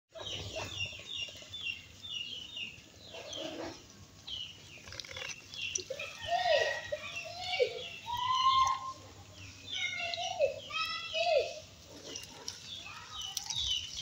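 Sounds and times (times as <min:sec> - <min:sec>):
birds chirping: 0:00.1 - 0:14.0
low bird calls: 0:00.2 - 0:11.3.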